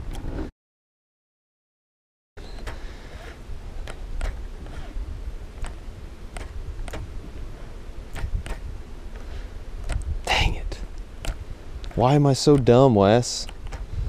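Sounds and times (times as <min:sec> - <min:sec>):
wind on microphone: 0:03.1 - 0:12.2, 0:13.5 - 0:14.0.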